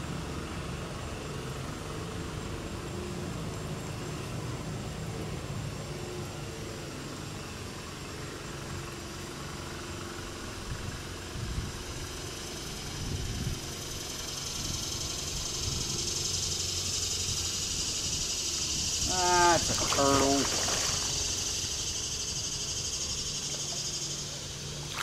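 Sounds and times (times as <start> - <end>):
high insect drone: 0.0 - 25.0.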